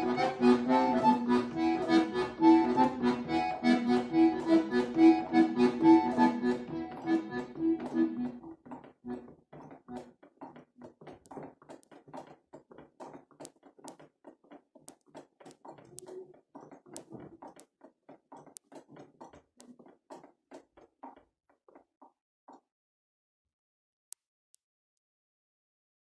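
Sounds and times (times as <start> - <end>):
soft accordion notes: 0.0 - 9.3.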